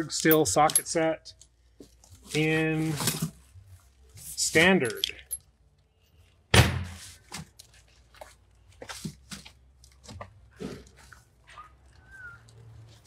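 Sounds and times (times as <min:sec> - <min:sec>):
heavy thunk: 0:06.5 - 0:07.0.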